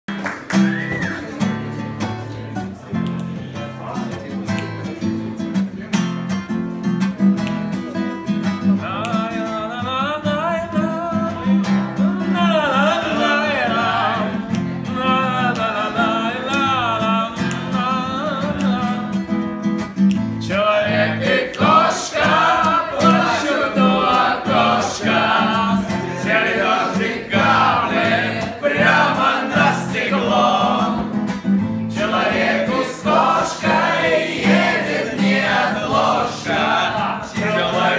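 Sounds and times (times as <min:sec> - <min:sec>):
acoustic guitar strumming: 0:00.1 - 0:37.9
man singing: 0:08.7 - 0:19.5, 0:20.4 - 0:31.2, 0:32.0 - 0:37.9
group singing in chorus: 0:12.0 - 0:19.0, 0:20.4 - 0:37.9.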